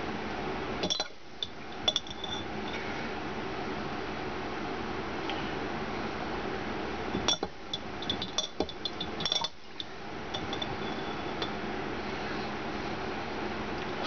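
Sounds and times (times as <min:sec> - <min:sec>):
fork clinking against glass jar: 0:00.8 - 0:02.5, 0:07.2 - 0:11.6.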